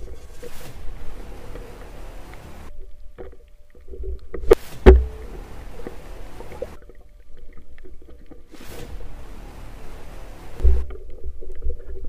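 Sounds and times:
low underwater rumble: 0.0 - 12.0
sharp knocks with low thud: 4.7 - 5.3.

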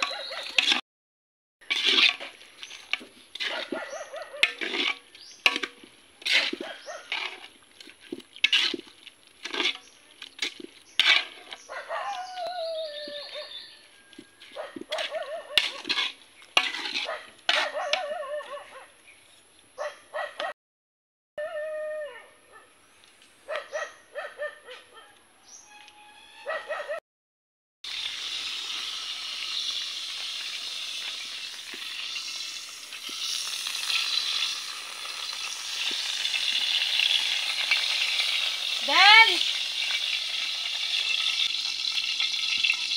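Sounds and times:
dog barking: 3.4 - 4.6, 6.6 - 7.1, 11.7 - 12.4, 14.6 - 15.8, 17.0 - 18.9, 19.8 - 20.6, 23.5 - 25.2, 26.4 - 27.0
dog whining: 11.7 - 13.5, 26.4 - 27.0.

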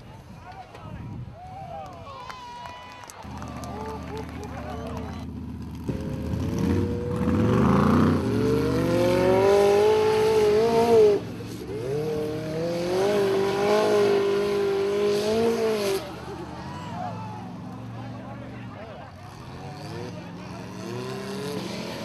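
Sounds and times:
buggy engine revving hard: 5.2 - 18.5, 19.1 - 22.0.

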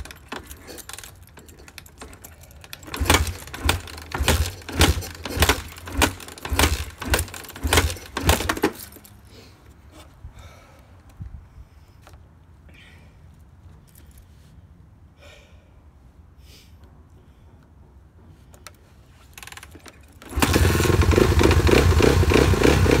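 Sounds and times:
motorcycle kickstart clacks: 0.0 - 9.2, 19.3 - 23.0.

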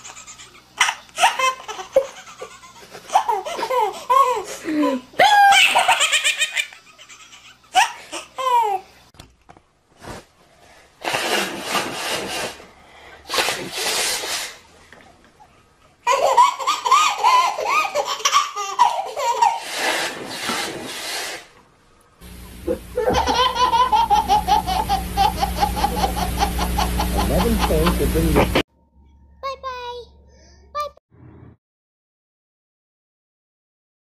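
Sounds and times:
steady hum: 10.7 - 31.0
high-pitched laughter: 23.0 - 28.0.

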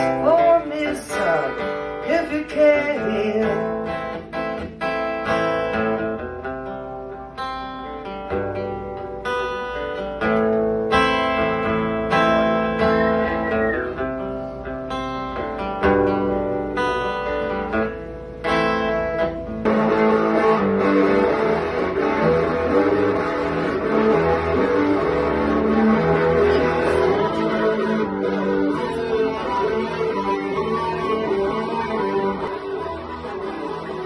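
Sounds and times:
acoustic guitar strumming: 0.0 - 34.0.

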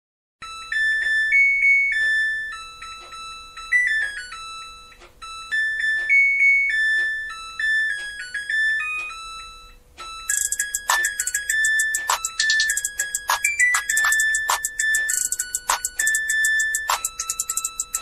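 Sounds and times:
light keyboard melody: 0.4 - 18.0.

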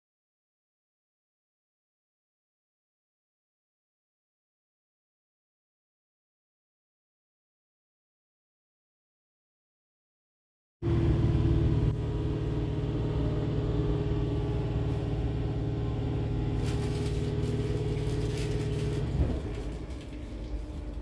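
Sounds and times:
train hum and rumble: 10.8 - 21.0.

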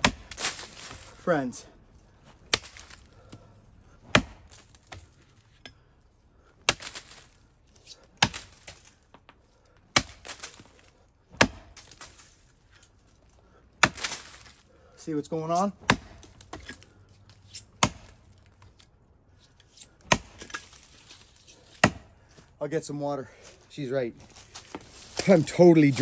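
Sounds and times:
axe chopping tree trunk: 0.0 - 1.2, 2.4 - 3.5, 4.1 - 5.2, 6.6 - 12.3, 13.8 - 14.6, 15.4 - 18.9, 19.7 - 22.2.

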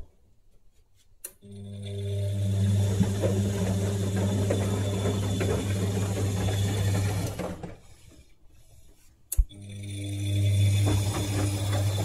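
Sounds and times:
washer-dryer humming and rattling: 1.5 - 8.3, 9.4 - 12.0.

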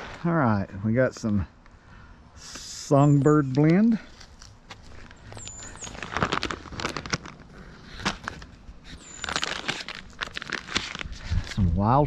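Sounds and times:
crackles and clicks: 2.4 - 11.9
plastic bags rustling: 4.0 - 11.7.

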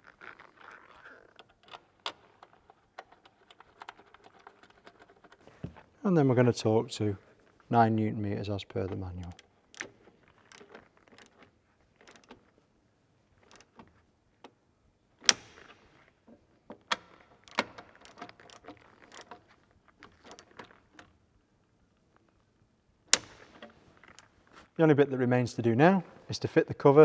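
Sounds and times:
torque tool ratcheting clicks: 9.2 - 11.4.

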